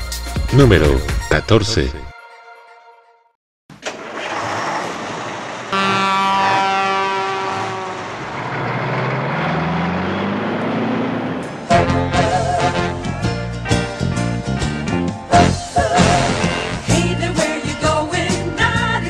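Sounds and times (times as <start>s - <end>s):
truck engine running: 3.7s - 17.3s
truck air horn blast: 5.7s - 8.2s, 11.7s - 13.2s, 15.4s - 17.0s.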